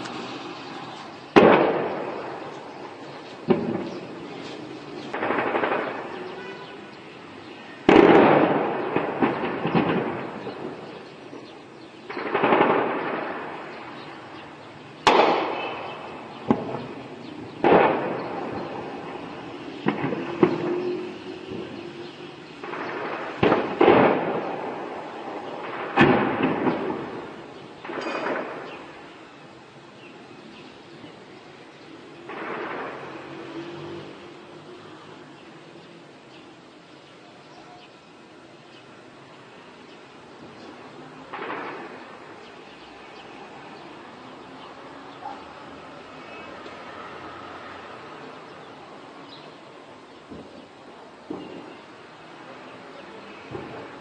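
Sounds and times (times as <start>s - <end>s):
shelling explosions with echo: 1.3s - 4.2s, 5.1s - 6.5s, 7.8s - 14.0s, 15.0s - 20.8s, 22.6s - 29.0s, 32.2s - 33.4s, 41.2s - 42.5s.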